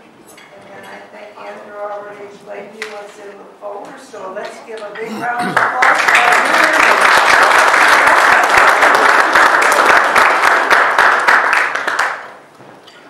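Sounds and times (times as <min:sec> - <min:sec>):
audience applauding: 0:05.5 - 0:12.4.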